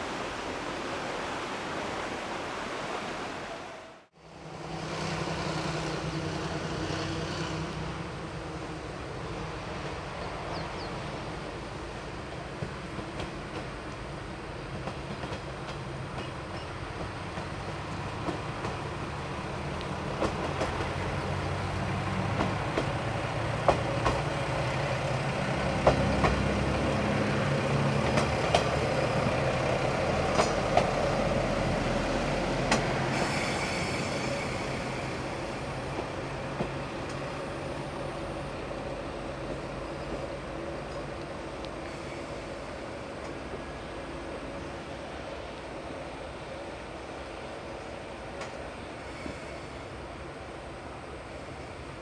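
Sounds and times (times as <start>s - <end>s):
diesel railcar engine: 4.2s - 52.0s
wheels clacking over rail joints: 14.7s - 31.4s.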